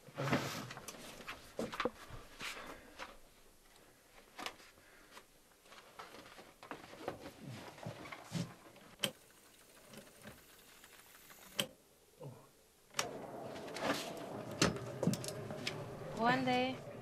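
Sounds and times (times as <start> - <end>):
tape rewinding whir: 9.1 - 11.7.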